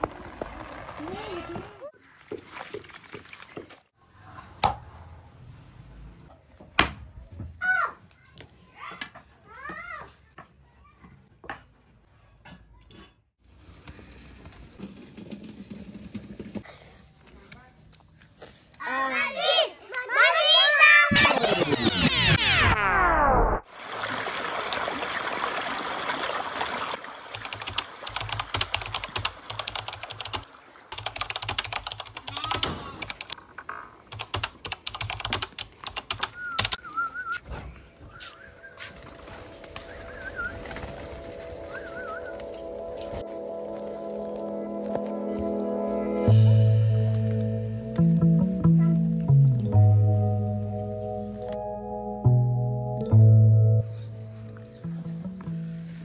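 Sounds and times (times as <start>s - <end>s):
water rushing along channel: 23.7s - 31.0s
keyboard typing clicks: 27.3s - 30.4s, 31.0s - 33.4s, 34.1s - 36.8s.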